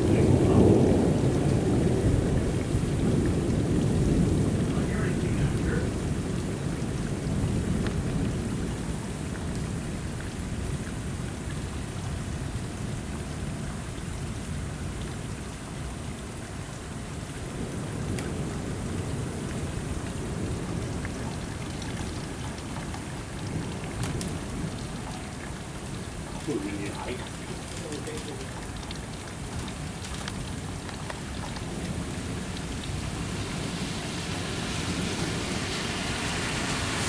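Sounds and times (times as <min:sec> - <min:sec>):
thunder rumbling: 0:00.0 - 0:15.0, 0:17.1 - 0:37.0
heavy rain pouring: 0:00.0 - 0:37.0.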